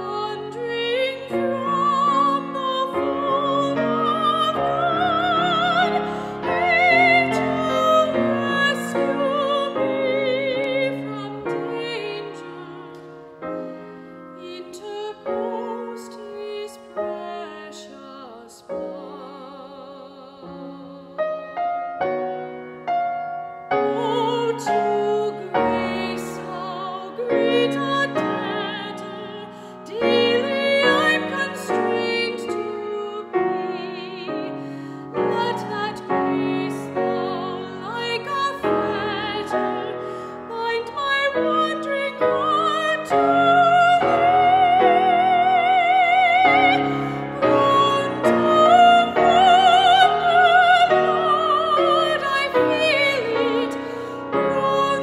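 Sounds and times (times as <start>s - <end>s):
woman singing operatically: 0.0s - 12.9s, 14.4s - 21.4s, 23.8s - 55.0s
piano: 0.0s - 55.0s.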